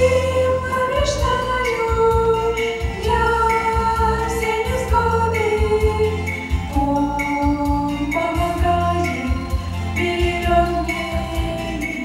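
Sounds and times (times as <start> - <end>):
girls singing in harmony: 0.0 - 12.0
instrumental accompaniment with bass: 0.0 - 12.0.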